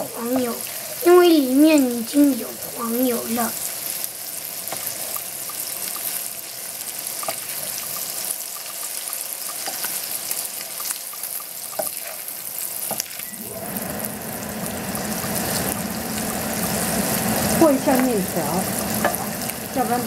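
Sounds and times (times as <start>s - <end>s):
ham sizzling in a frying pan: 0.0s - 20.0s
low steady hum: 13.3s - 20.0s
wooden spoon knocking pan: 19.0s - 19.4s.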